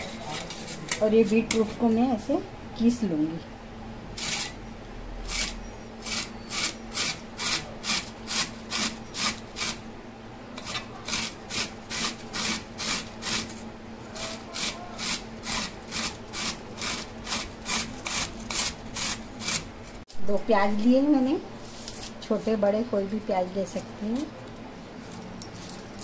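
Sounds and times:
beetroot grating strokes: 10.6 - 20.0.

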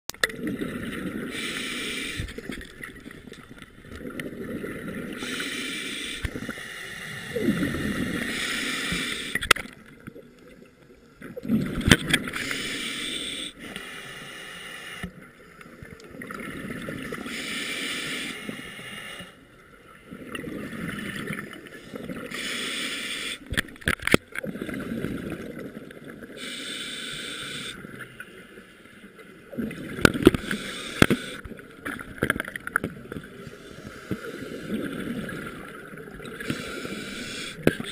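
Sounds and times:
gurgling exhaled bubbles: 0.3 - 1.3, 7.3 - 8.3
regulator inhale hiss: 1.3 - 2.6, 5.1 - 9.6, 12.4 - 15.2, 17.2 - 19.4, 21.7 - 23.6, 26.4 - 29.0, 30.2 - 31.5, 33.4 - 35.1, 36.4 - 37.9.

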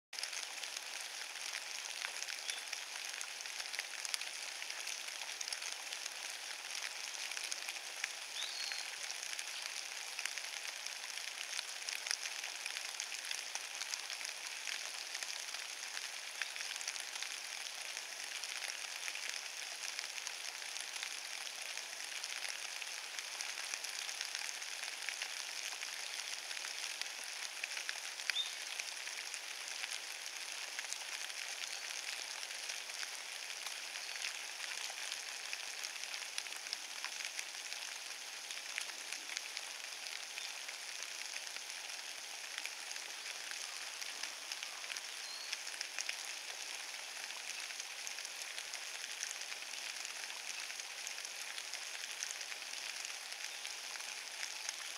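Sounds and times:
rain pattering on wet leaves: 0.2 - 54.9.

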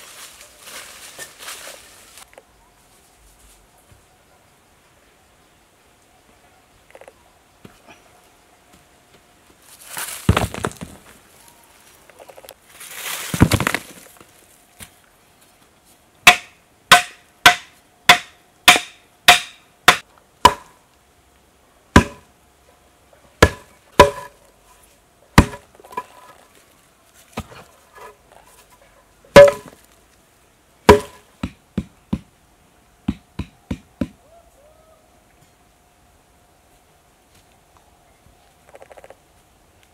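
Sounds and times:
hand tool striking hard earth: 13.3 - 14.0, 16.2 - 20.7, 22.0 - 22.2, 23.4 - 24.4, 25.4 - 26.2, 29.3 - 29.8, 30.9 - 32.3.

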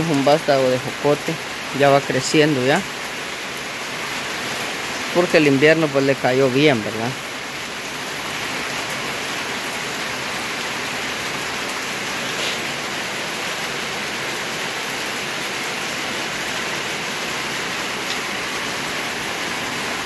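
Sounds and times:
heavy rain hissing: 0.0 - 20.0.

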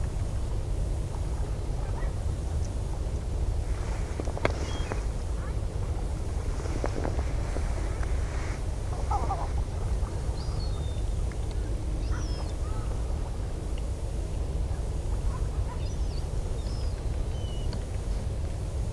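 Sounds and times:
wind rumble on microphone: 0.0 - 18.9
seabirds calling: 4.3 - 6.2, 7.0 - 11.2, 11.8 - 13.1.

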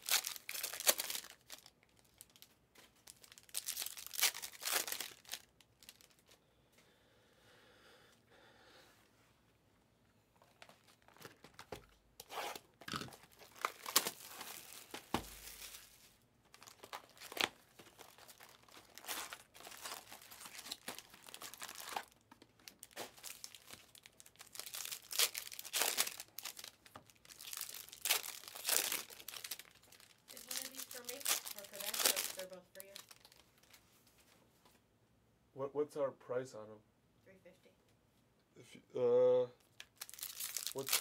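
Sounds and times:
foil wrappers crinkling and tearing: 0.0 - 6.3, 12.8 - 33.8, 39.8 - 41.0.

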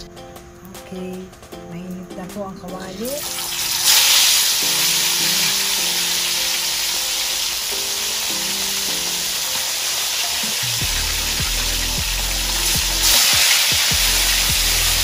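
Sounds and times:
fish frying in hot oil: 3.2 - 15.0.

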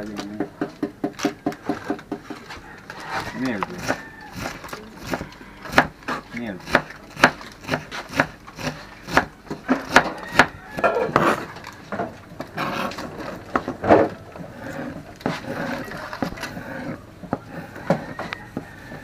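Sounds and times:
knife chopping on plastic board: 3.3 - 11.4
knife slicing and scraping: 10.8 - 11.6, 12.5 - 13.4.

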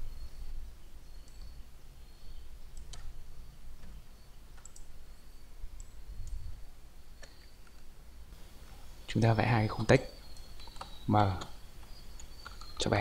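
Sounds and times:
faint background hum: 0.0 - 13.0
computer mouse clicks: 1.2 - 1.6, 2.7 - 3.1, 4.6 - 4.9, 5.8 - 6.5, 7.2 - 7.9, 10.3 - 12.9.

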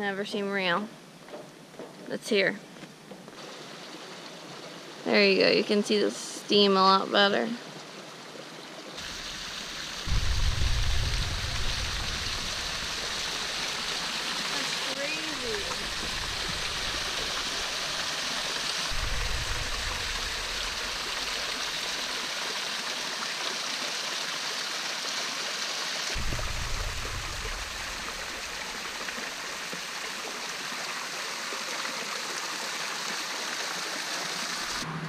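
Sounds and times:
water trickling down rock: 9.0 - 23.8
low rumbles: 9.1 - 22.3, 26.2 - 29.7.

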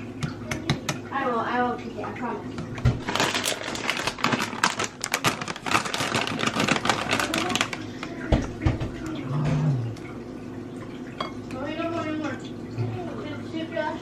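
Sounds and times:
plastic snack bag crinkling: 3.0 - 8.5.

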